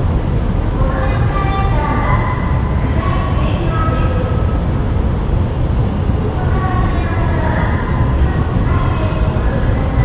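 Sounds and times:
escalator rumble: 0.0s - 10.0s
public address voice: 0.8s - 4.3s, 6.3s - 10.0s.

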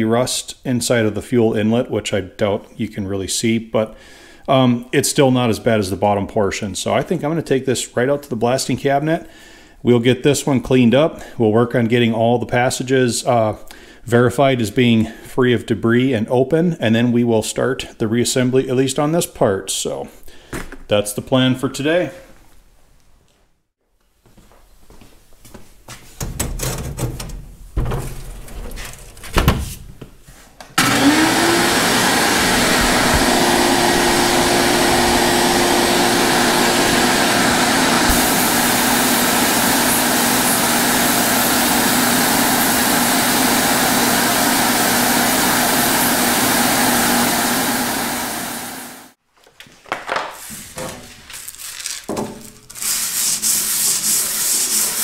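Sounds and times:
hiss of blasting air and grit: 36.6s - 43.6s
metal rubbing on sandpaper: 52.8s - 55.0s.

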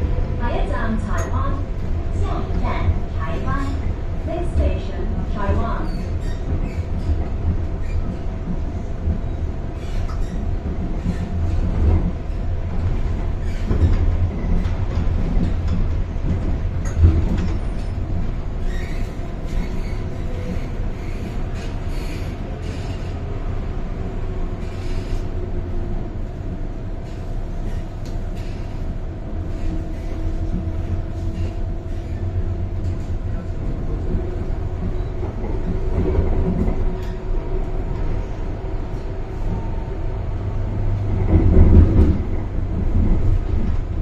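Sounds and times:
train wheels rumbling on rail: 0.0s - 44.0s.

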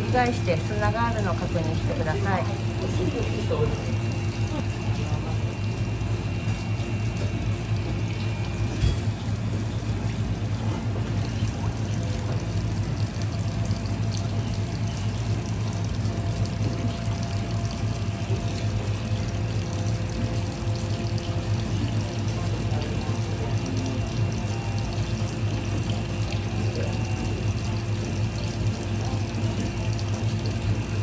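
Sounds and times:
tap water running: 0.0s - 31.0s.

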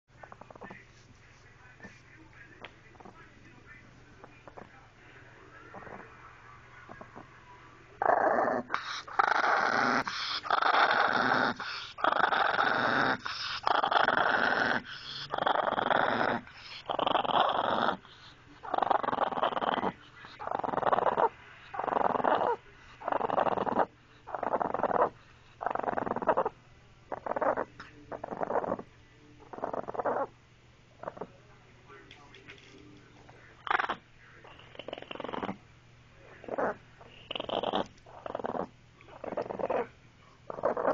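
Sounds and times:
small dog growling: 0.2s - 0.8s, 2.6s - 3.2s, 4.2s - 4.7s, 5.7s - 6.2s, 6.8s - 7.3s, 8.0s - 30.3s, 31.0s - 31.4s, 33.6s - 35.6s, 36.2s - 40.9s
dog breathing: 8.1s - 26.5s.

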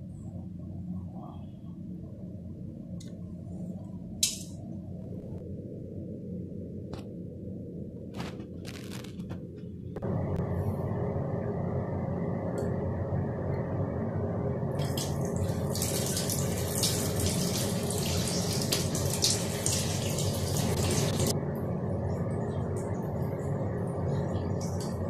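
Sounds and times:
tap water running into basin: 14.8s - 21.3s.

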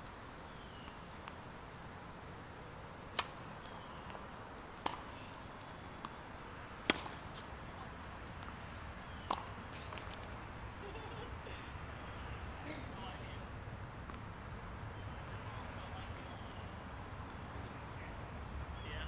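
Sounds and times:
racket hitting tennis ball: 3.1s - 3.4s, 4.8s - 5.1s, 6.8s - 7.5s, 9.2s - 10.3s
tennis ball bouncing: 3.1s - 3.4s, 4.8s - 5.1s, 6.8s - 7.5s, 9.2s - 10.3s.

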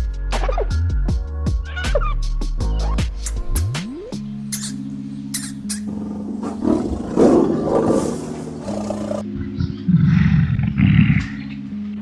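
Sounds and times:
background music: 0.0s - 12.0s
deep animal roars: 5.9s - 11.5s.

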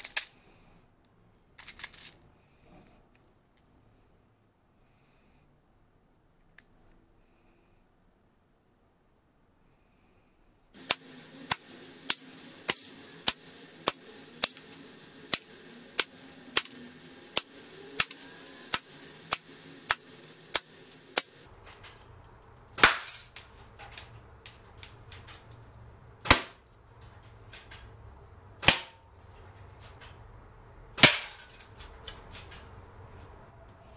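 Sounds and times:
airsoft rifle shots: 22.8s - 23.4s, 26.2s - 26.6s, 28.6s - 29.0s, 31.0s - 31.5s.

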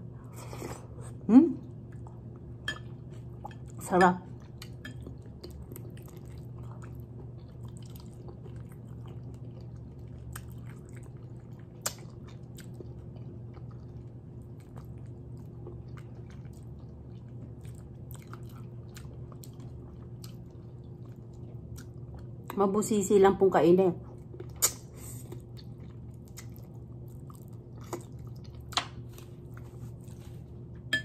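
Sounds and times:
person chewing and sucking: 24.2s - 30.6s.

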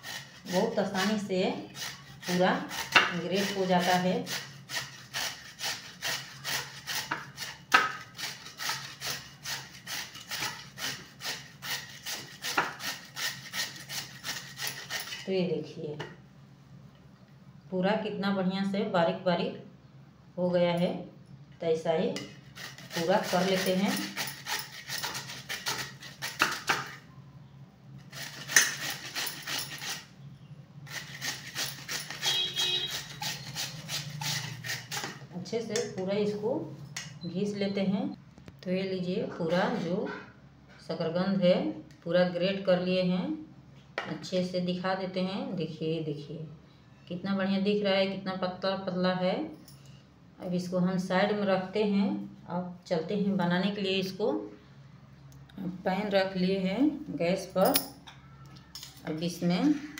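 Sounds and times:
sweet potato grated on grater: 0.0s - 15.3s, 22.3s - 27.0s, 28.0s - 30.1s, 30.9s - 35.2s.

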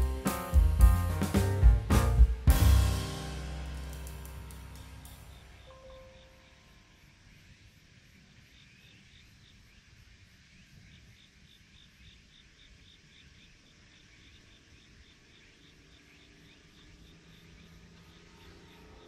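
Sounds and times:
high even pulse: 0.0s - 6.8s
insects chirping: 4.0s - 19.0s.

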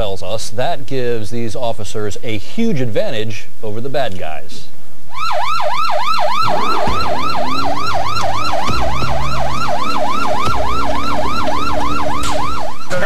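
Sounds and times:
police siren yelping: 5.1s - 13.0s.

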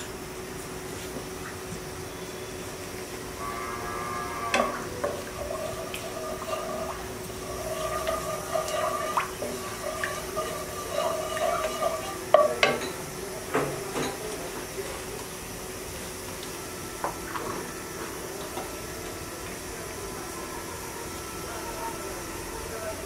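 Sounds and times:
wooden spatula scraping pan: 5.4s - 12.5s
spatula tapping pan: 7.8s - 12.8s.

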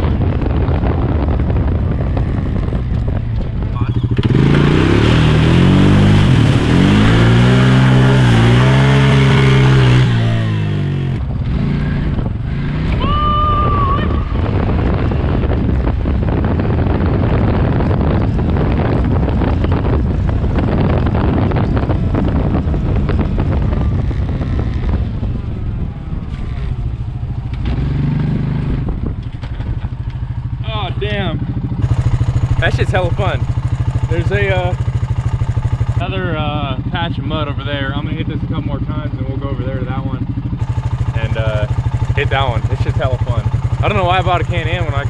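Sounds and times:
quad engine revving: 3.7s - 13.6s, 27.5s - 29.0s, 30.9s - 45.0s.

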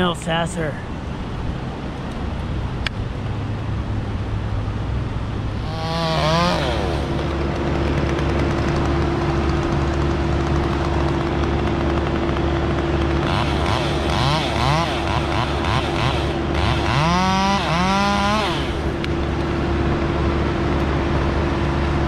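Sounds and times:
low engine drone: 0.0s - 22.0s
chainsaw revving: 5.5s - 19.4s.

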